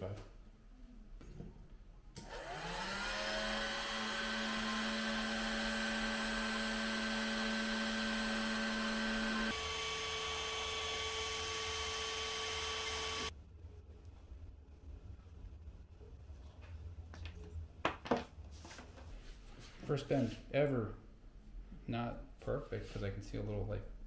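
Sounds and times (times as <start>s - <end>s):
heat gun fan running: 2.2s - 13.3s.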